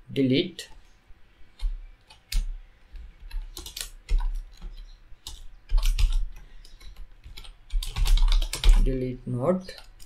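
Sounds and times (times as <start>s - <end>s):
keyboard typing: 1.5s - 9.0s, 9.6s - 10.0s.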